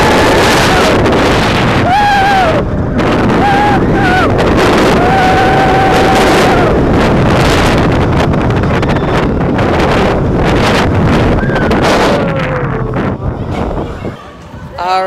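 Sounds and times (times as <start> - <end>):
wind rush on microphone: 0.0 - 15.0
riders screaming: 1.7 - 6.8.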